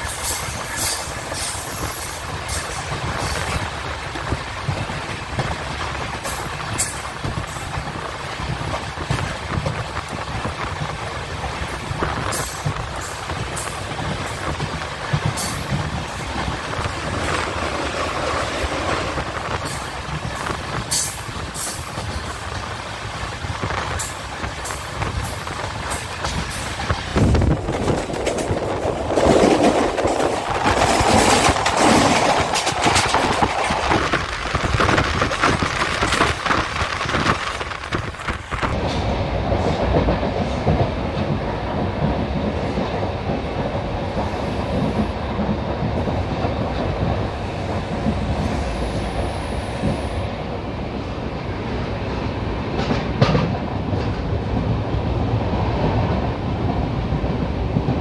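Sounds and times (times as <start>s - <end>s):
wheels clacking over rail joints: 0.0s - 50.2s, 52.6s - 58.0s
train wheels rumbling on rails: 0.0s - 58.0s.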